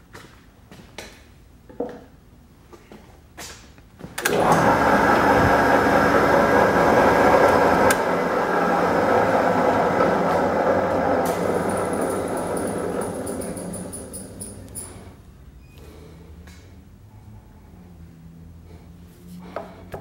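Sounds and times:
metal lathe running: 4.4s - 14.8s.

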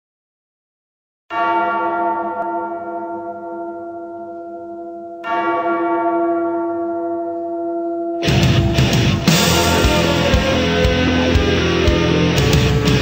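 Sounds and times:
large bell ringing: 1.3s - 13.0s
heavy rock music: 8.2s - 13.0s.

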